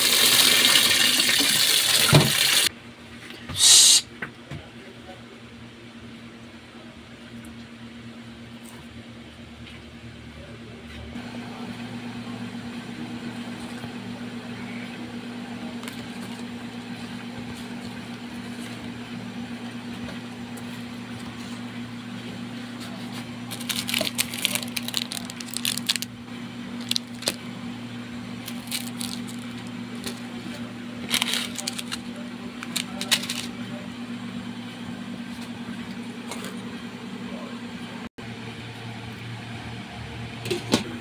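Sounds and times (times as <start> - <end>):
low electrical hum: 2.7 - 40.8
plastic packaging crackling: 23.5 - 26.1, 26.7 - 27.4, 28.4 - 30.2, 31.0 - 33.5.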